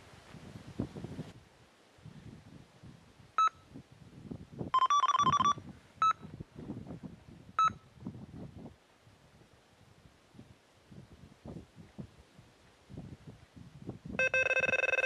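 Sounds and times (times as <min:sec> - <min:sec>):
electronic bite alarm beeping: 0:04.8 - 0:06.2, 0:14.2 - 0:15.0.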